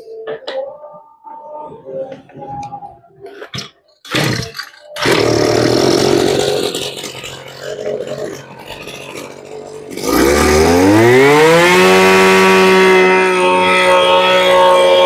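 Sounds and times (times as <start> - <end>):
recoil starter pull: 3.5 - 13.3
brush-cutter engine running: 5.0 - 15.0.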